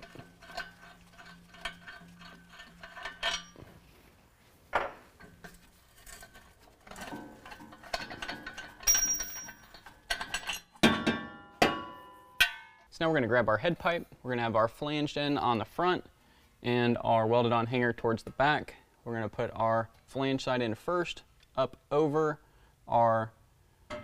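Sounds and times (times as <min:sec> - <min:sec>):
metal parts clinking and rattling: 0:00.0 - 0:03.6, 0:05.2 - 0:10.8
ringing metal clanks: 0:08.4 - 0:10.7.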